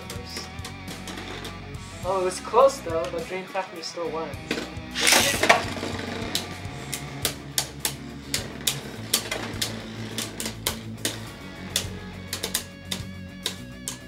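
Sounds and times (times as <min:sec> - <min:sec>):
plastic clacks of tops colliding: 0:04.4 - 0:14.0
spinning tops whirring: 0:04.9 - 0:12.6.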